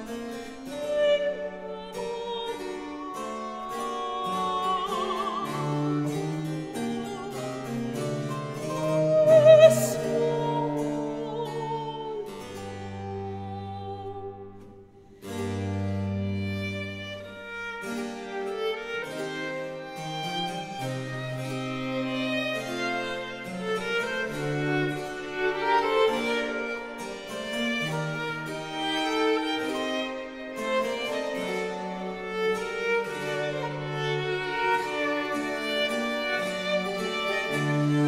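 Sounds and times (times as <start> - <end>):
classical-style music: 0.0 - 38.0.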